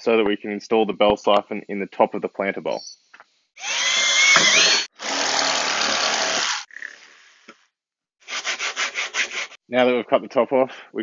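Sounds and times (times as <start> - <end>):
power saw cutting plastic: 3.6 - 6.7
scratchy strokes: 8.2 - 9.6.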